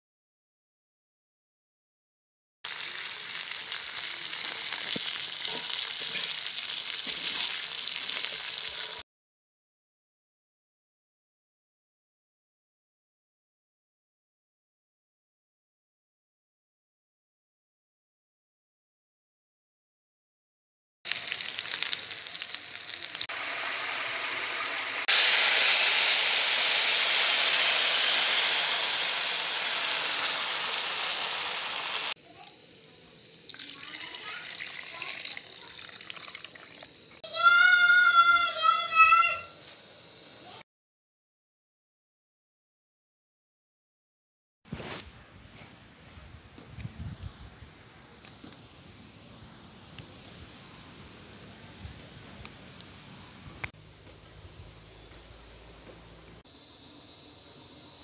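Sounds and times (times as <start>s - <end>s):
noodles and onion sizzling in oil: 2.7s - 9.0s, 21.1s - 38.3s
water poured into hot pan: 2.7s - 9.0s, 21.1s - 32.2s, 33.4s - 37.5s
metal spatula stirring: 5.4s - 6.4s
water bubbling at a boil: 33.5s - 37.2s.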